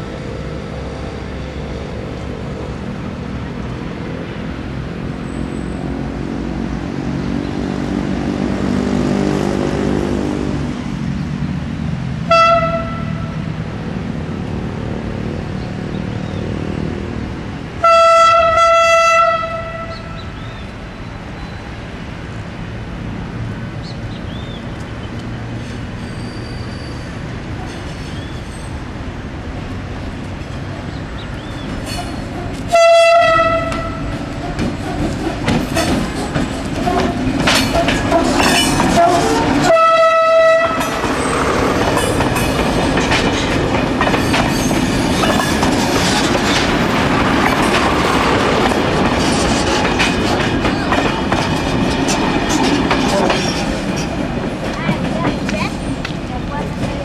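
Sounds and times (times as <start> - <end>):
diesel train engine: 0.0 - 57.0
train horn blasts: 12.3 - 13.4, 17.8 - 20.3, 32.7 - 34.2, 38.1 - 41.0
train wheels clicking over rail joints: 31.5 - 32.8, 33.6 - 39.8, 40.6 - 57.0.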